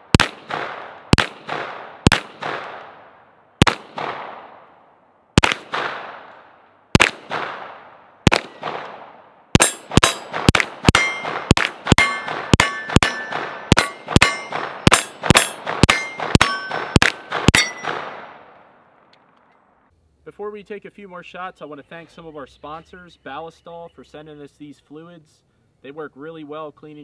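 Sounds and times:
pistol gunshots: 0:00.0 - 0:04.8, 0:05.4 - 0:18.7
steel targets ringing: 0:09.6 - 0:10.3, 0:10.9 - 0:18.0.

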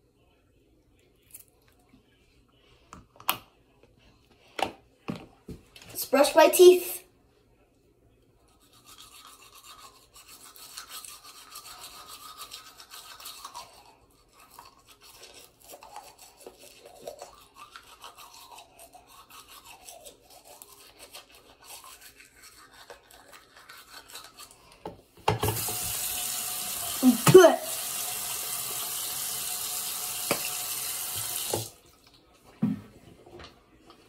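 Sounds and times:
toothbrush scrubbing teeth: 0:08.4 - 0:24.9
tap running into sink: 0:25.3 - 0:26.1, 0:30.2 - 0:31.7.

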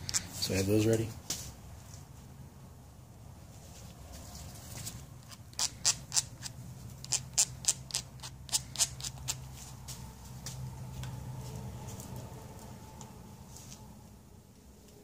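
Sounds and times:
steady low hum: 0:00.0 - 0:15.0
short sharp squeaks: 0:05.2 - 0:09.4.

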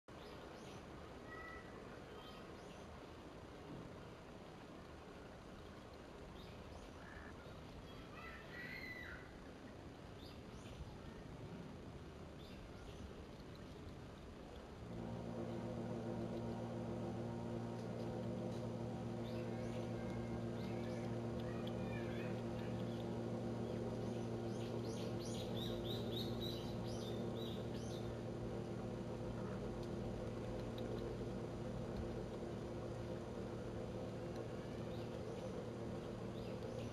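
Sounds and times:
faint bird chirps: 0:00.1 - 0:03.0, 0:06.4 - 0:09.3, 0:19.2 - 0:28.2
low steady hiss: 0:00.1 - 0:36.9
songbird chirping: 0:05.1 - 0:09.4, 0:14.5 - 0:36.9
steady low hum: 0:09.0 - 0:36.9.

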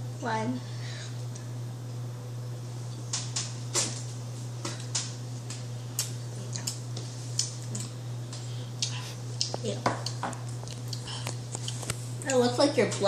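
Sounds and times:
steady low hum: 0:00.0 - 0:13.0
mouths chewing: 0:08.8 - 0:12.4.

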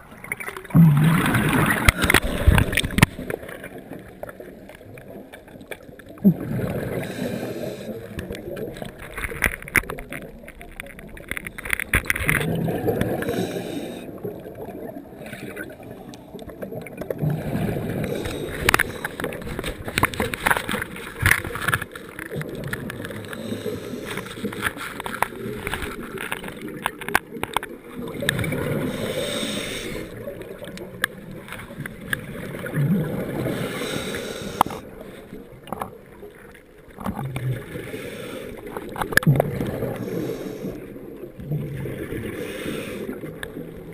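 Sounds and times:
exhaled bubbles rushing: 0:00.0 - 0:35.0, 0:38.6 - 0:43.9
diver breathing through regulator: 0:06.3 - 0:08.2, 0:12.9 - 0:14.2, 0:17.2 - 0:19.6, 0:23.1 - 0:25.1, 0:28.6 - 0:30.2, 0:33.3 - 0:34.9, 0:37.6 - 0:38.9, 0:39.6 - 0:40.9, 0:42.2 - 0:43.3.

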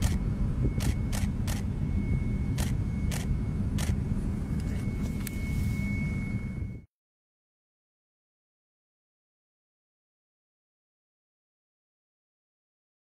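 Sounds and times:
jet engines rumbling: 0:00.0 - 0:06.9
faint high tone: 0:01.8 - 0:06.9.

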